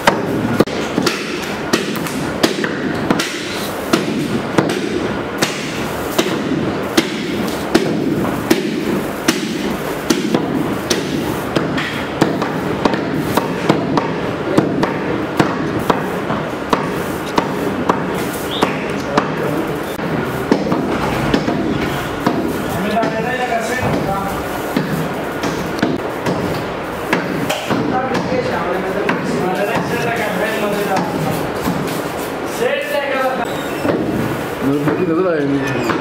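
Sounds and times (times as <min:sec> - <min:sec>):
knives chopping on wooden boards: 0:00.0 - 0:19.4, 0:20.0 - 0:24.1, 0:24.7 - 0:28.4, 0:33.8 - 0:34.3.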